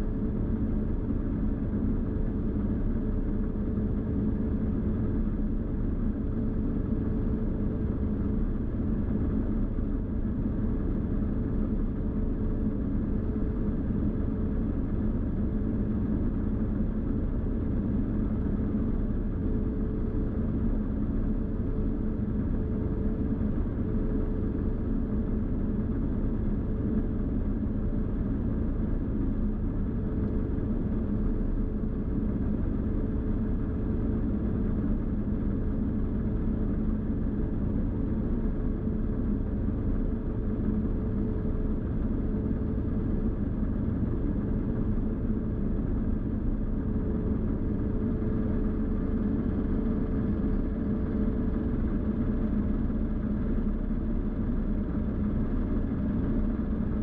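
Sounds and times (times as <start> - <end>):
faint constant whine: 0.0 - 57.0.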